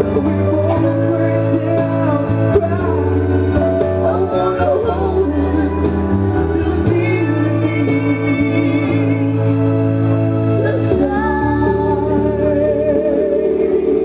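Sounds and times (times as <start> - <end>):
man and woman singing: 0.0 - 9.6
backing music with guitar and bass: 0.0 - 14.0.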